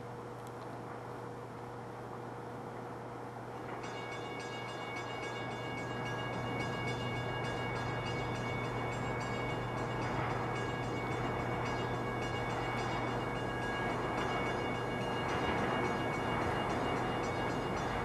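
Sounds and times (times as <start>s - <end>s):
train rumble: 3.6s - 18.0s
steady chord of high tones: 3.8s - 18.0s.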